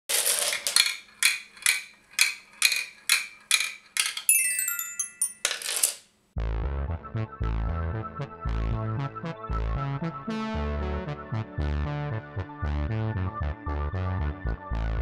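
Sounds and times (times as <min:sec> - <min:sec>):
ball clicking down plastic tower: 0:00.1 - 0:06.1
dominoes toppling: 0:00.1 - 0:06.1
toy xylophone notes ringing: 0:02.7 - 0:05.8.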